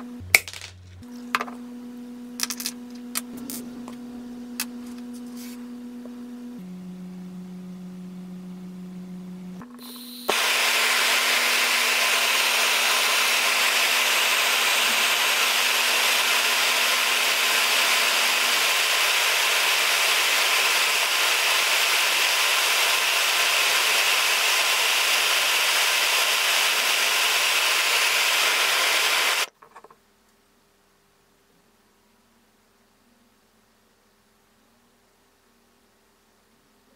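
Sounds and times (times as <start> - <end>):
gas torch flame hissing: 9.8 - 29.5.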